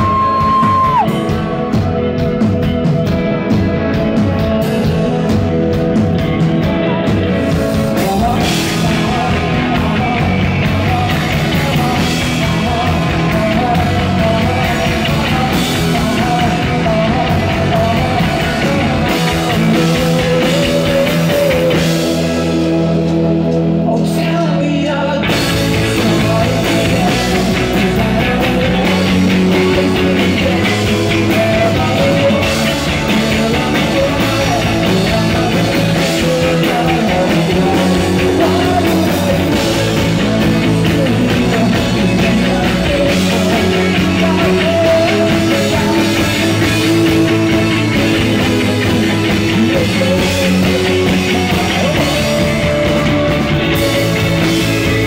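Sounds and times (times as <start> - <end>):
bass guitar: 0.0 - 55.0
drums: 0.0 - 55.0
electric guitars: 0.0 - 55.0
man singing: 0.0 - 55.0.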